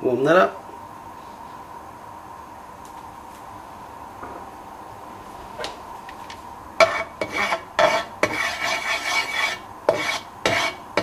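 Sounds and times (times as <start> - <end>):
spatula scraping a wok: 6.8 - 11.0.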